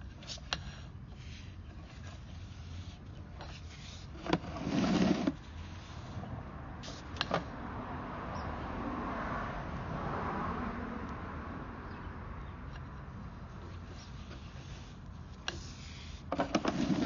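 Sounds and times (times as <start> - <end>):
vehicle passing by: 5.2 - 14.9.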